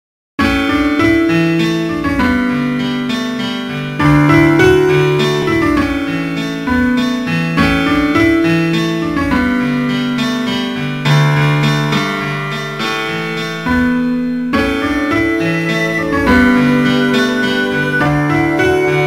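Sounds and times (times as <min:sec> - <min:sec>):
slow piano-like keyboard music: 0:00.4 - 0:19.0.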